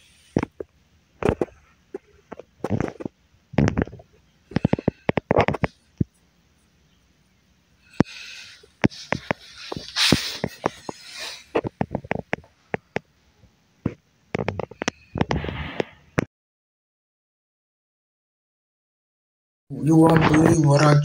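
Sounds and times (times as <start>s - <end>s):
scraping and rustling: 8.1s - 12.9s.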